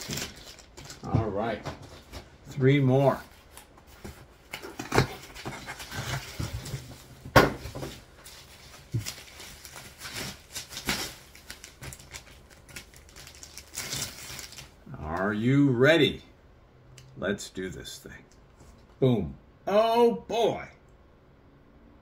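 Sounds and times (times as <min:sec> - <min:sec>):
packaging rustling: 0:00.0 - 0:02.4, 0:03.1 - 0:14.8.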